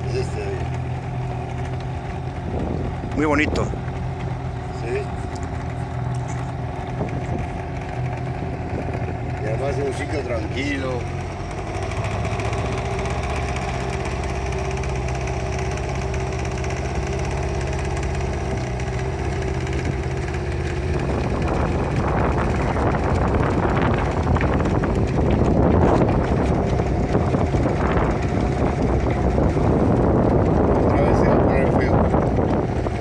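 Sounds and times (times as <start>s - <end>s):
boat engine running: 0.0s - 33.0s
wind noise: 1.6s - 4.6s, 5.2s - 9.4s, 18.1s - 33.0s.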